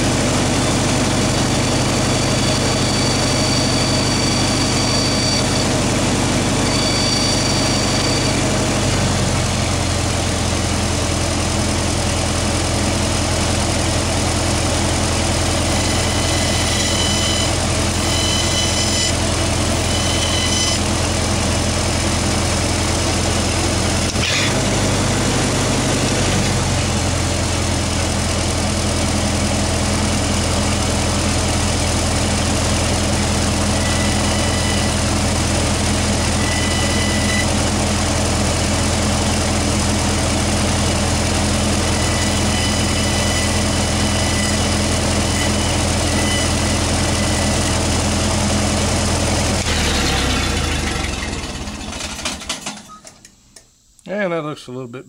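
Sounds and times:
welder engine running: 0.0s - 53.3s
faint high whistles: 2.4s - 5.7s, 6.6s - 8.4s
click: 53.0s - 54.1s.

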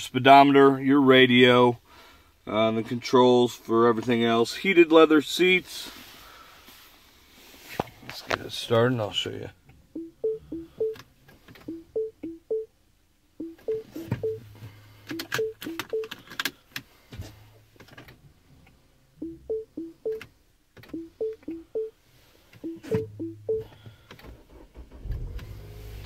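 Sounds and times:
two-tone warning chime: 10.0s - 11.0s, 13.4s - 14.4s, 19.2s - 20.2s, 22.6s - 23.7s
clicks: 15.1s - 16.5s.

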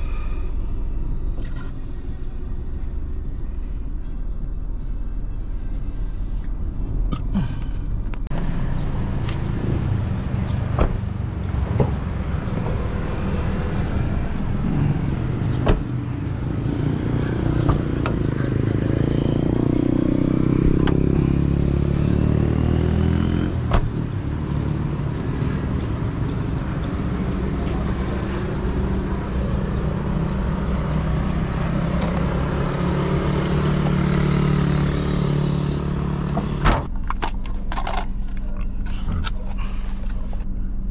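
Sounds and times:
road traffic: 0.0s - 40.9s
vehicle passing: 8.4s - 23.6s.

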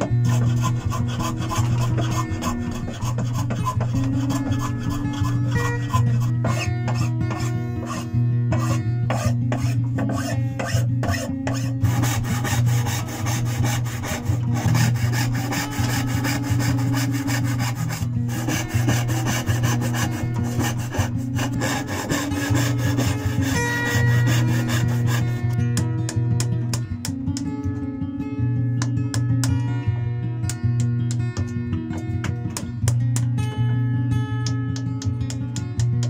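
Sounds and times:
hand file rasping: 0.0s - 25.6s
saw cutting wood: 0.0s - 25.6s
soft background music: 0.0s - 36.0s.

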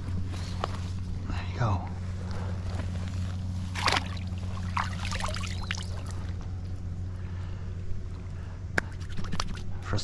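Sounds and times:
steady low hum: 0.0s - 10.0s
water splashing and trickling: 3.6s - 6.4s.

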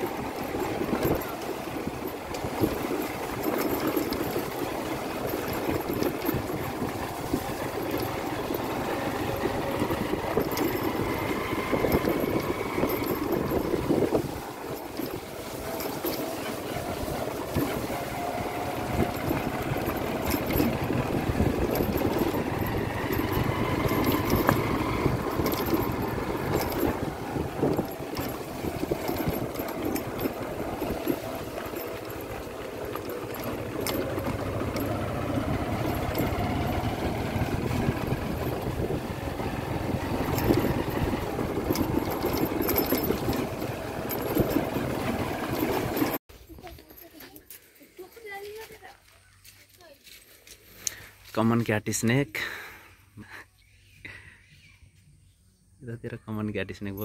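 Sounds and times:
rattles and clicks from bumps: 0.0s - 49.0s
motorbike engine at low speed: 0.0s - 53.4s.

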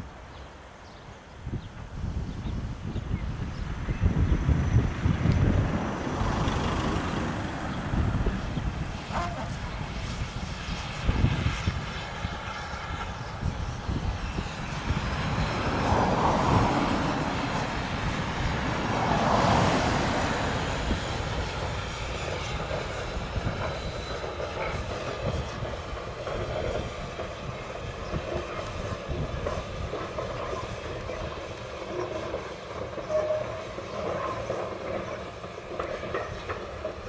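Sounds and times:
distant steam locomotive: 0.0s - 37.0s
steam hiss: 8.8s - 37.0s.

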